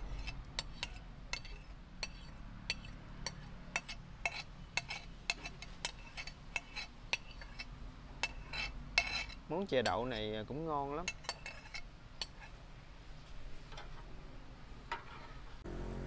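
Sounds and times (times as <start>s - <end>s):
metal utensil clinking on pot: 0.1s - 10.3s, 11.0s - 12.5s.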